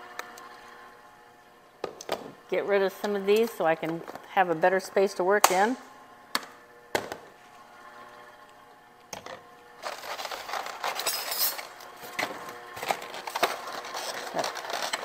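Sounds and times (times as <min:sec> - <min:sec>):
plastic egg carton crackling: 0:12.9 - 0:15.0.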